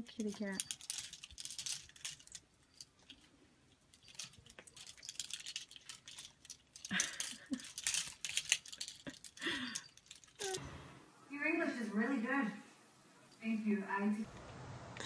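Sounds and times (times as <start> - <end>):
plastic hangers clattering: 0.0 - 10.6.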